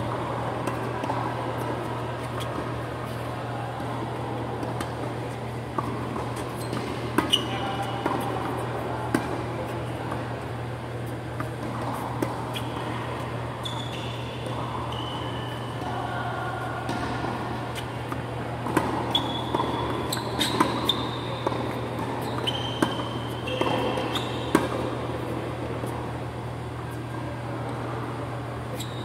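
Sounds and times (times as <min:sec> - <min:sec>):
shoes squeaking on court: 0:00.0 - 0:16.1, 0:16.8 - 0:29.0
ventilation fans humming: 0:00.0 - 0:29.0
racket hitting tennis ball: 0:04.6 - 0:09.8, 0:16.8 - 0:25.2.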